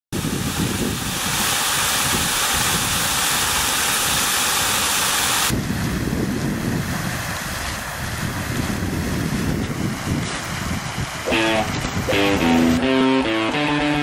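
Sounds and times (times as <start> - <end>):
wind buffeting microphone: 0.2 - 3.6, 5.5 - 12.8
hose nozzle mist spray hissing: 0.2 - 14.0.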